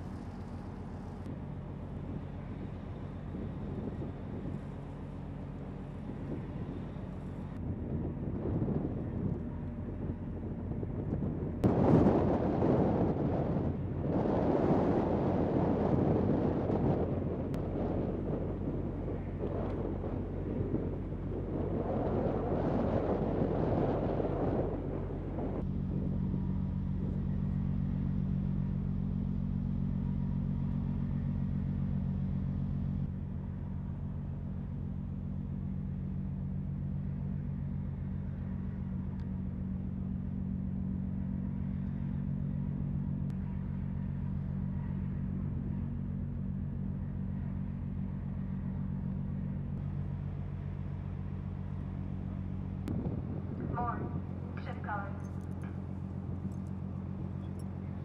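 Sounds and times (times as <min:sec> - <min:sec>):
wind buffeting microphone: 0:00.0 - 0:27.3, 0:51.3 - 0:58.0
low mechanical hum of ship machinery: 0:00.0 - 0:58.0.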